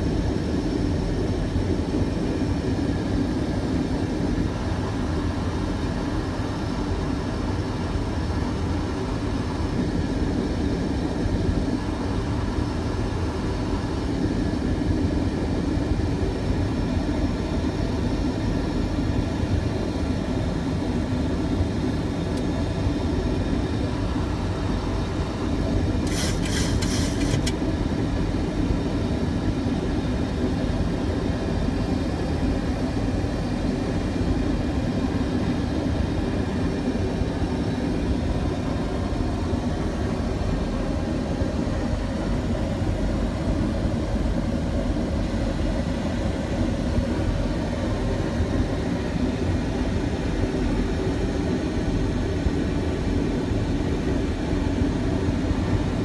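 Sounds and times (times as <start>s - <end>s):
low hum of jet engines: 0.0s - 56.0s
rush of airflow: 23.7s - 27.5s
quick run of clicks: 26.1s - 27.6s.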